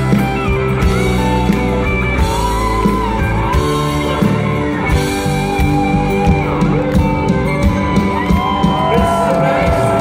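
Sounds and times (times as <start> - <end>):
live pop band playing: 0.0 - 10.0
man singing lead: 8.7 - 10.0.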